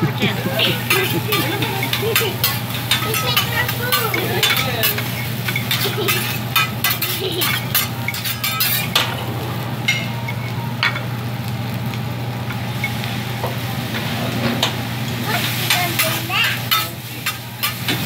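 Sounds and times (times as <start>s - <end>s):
rice sizzling: 0.0s - 18.0s
metal spatulas clicking on griddle: 0.8s - 9.0s, 15.4s - 18.0s.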